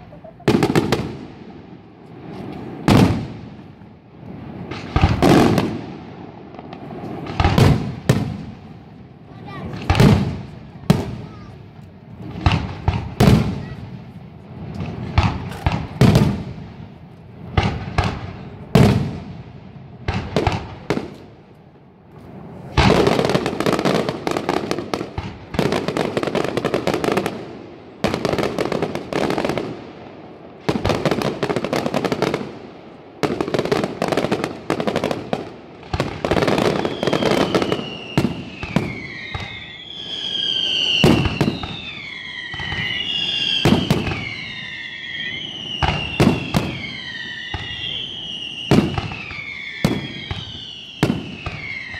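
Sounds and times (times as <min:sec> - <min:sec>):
fireworks crackling barrages: 0:00.0 - 0:51.9
gliding firework whistle: 0:36.4 - 0:51.9.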